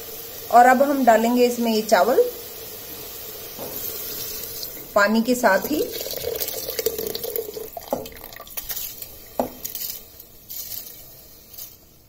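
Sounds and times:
water trickling: 0:04.3 - 0:09.2.

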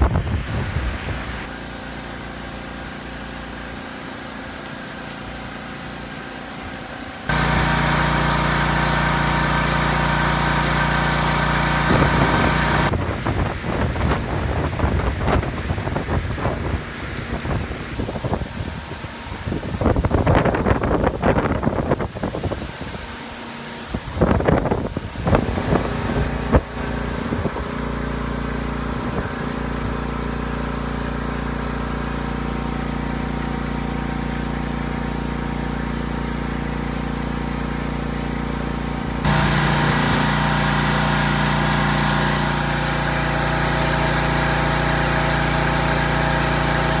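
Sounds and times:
wind buffeting microphone: 0:00.0 - 0:01.4, 0:11.9 - 0:23.1, 0:23.9 - 0:27.7
steady machine hum: 0:00.0 - 0:15.4, 0:24.2 - 0:47.0.

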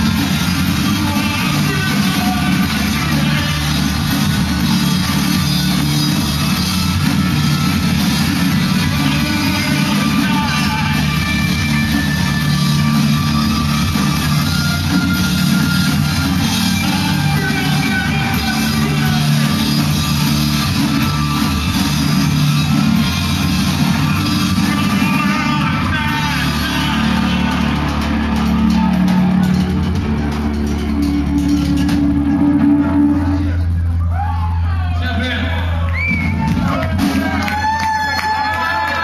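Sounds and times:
rock band playing live: 0:00.0 - 0:35.3, 0:36.0 - 0:39.0
bass guitar: 0:00.0 - 0:39.0
drums: 0:00.0 - 0:39.0
person singing into a microphone: 0:00.8 - 0:03.9, 0:08.8 - 0:11.5, 0:16.6 - 0:19.6, 0:24.4 - 0:27.7.

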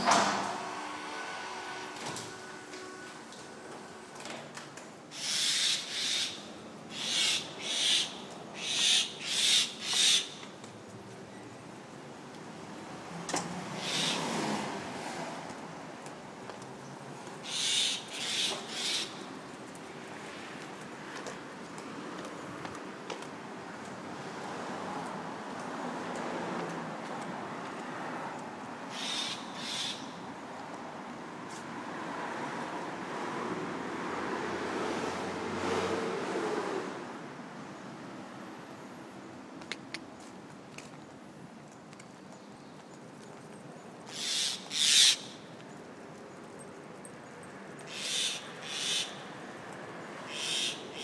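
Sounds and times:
cars passing: 0:00.0 - 0:41.6, 0:43.0 - 0:51.0
bird harsh rasping calls: 0:05.1 - 0:10.4, 0:13.8 - 0:14.2, 0:17.4 - 0:19.2, 0:28.9 - 0:30.2, 0:44.1 - 0:45.4, 0:47.9 - 0:49.2, 0:50.3 - 0:51.0.

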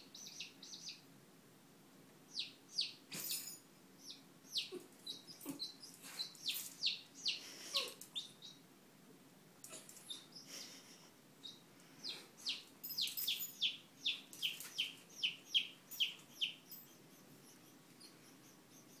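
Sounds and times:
chick peeping: 0:00.0 - 0:01.0, 0:02.3 - 0:03.0, 0:04.0 - 0:08.6, 0:11.4 - 0:12.7, 0:13.6 - 0:19.0.

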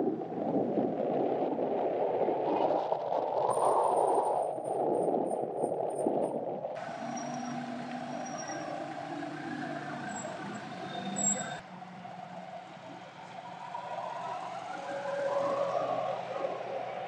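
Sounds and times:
traffic engines running: 0:06.8 - 0:17.0.

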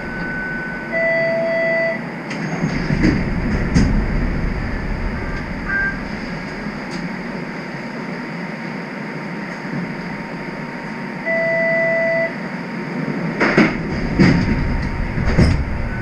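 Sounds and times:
short electronic beep: 0:00.0 - 0:02.0, 0:05.6 - 0:06.1, 0:11.2 - 0:12.4
streetcar equipment hum: 0:00.0 - 0:16.0
sharp clicks and knocks: 0:13.4 - 0:15.8.

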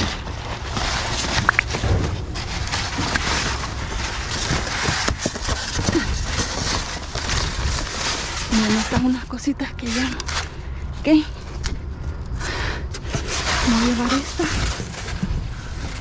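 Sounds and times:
plastic and cardboard crinkling: 0:00.0 - 0:12.3, 0:12.9 - 0:16.0
low rumble: 0:00.1 - 0:08.9.

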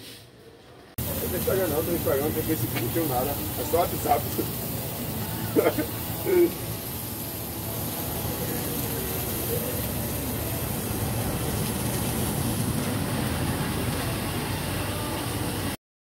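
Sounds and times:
high hiss: 0:01.0 - 0:15.8.

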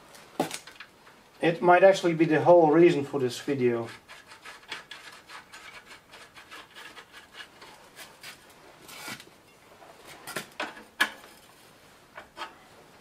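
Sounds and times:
small metal ticks and scrapes: 0:03.8 - 0:08.5.

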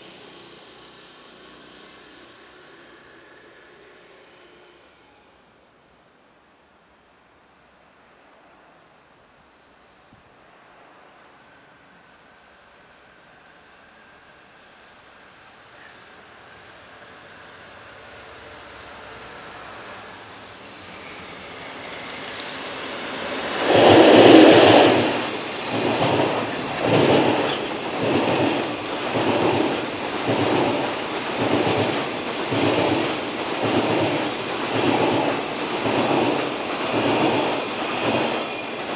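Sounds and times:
diesel locomotive passing: 0:00.0 - 0:06.5, 0:10.4 - 0:38.9
wheels clacking over rail joints: 0:21.1 - 0:38.9.

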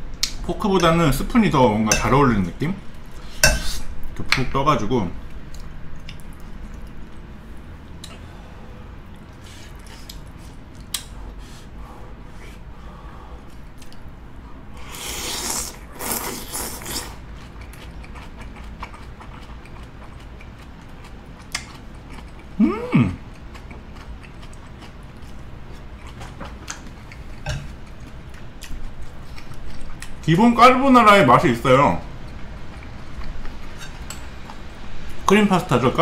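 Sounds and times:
wet chewing and smacking: 0:05.3 - 0:08.2, 0:09.0 - 0:11.1, 0:16.0 - 0:22.6, 0:23.2 - 0:30.2
food crunching: 0:14.8 - 0:30.3
person humming mm: 0:22.6 - 0:23.2.

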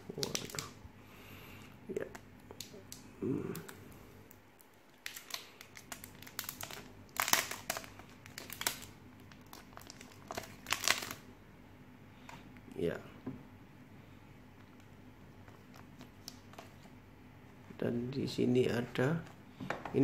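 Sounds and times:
plastic packaging crinkling: 0:00.0 - 0:00.8, 0:04.6 - 0:11.3.

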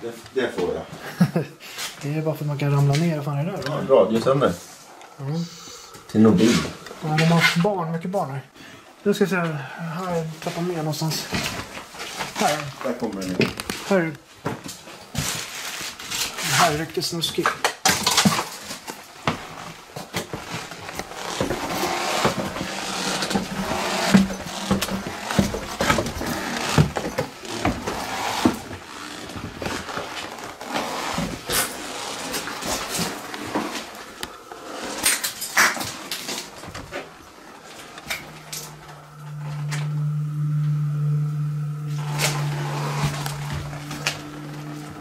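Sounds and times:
footsteps down a staircase: 0:19.3 - 0:28.8
low steady hum: 0:36.5 - 0:45.0.

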